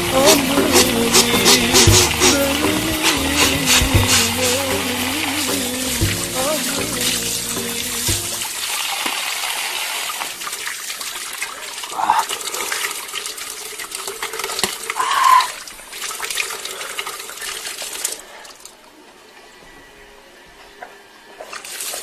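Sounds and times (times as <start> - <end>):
short pitched sounds: 0.0 - 8.4
water running and splashing: 0.0 - 18.8.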